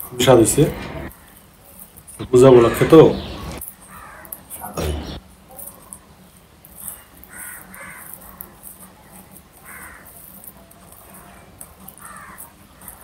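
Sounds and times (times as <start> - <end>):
crows cawing: 2.2 - 5.2, 7.2 - 8.4, 9.6 - 10.3, 11.9 - 13.0.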